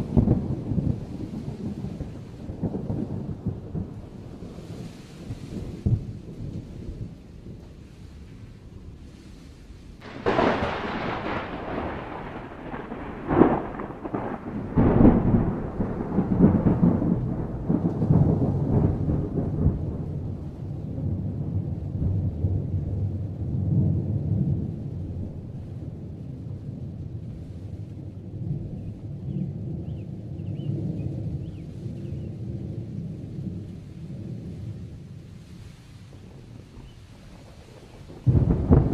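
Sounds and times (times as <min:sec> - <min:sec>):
thunder cracks: 0:00.0 - 0:07.7, 0:10.0 - 0:27.1, 0:36.2 - 0:38.9
thunder rumbling: 0:00.0 - 0:38.9.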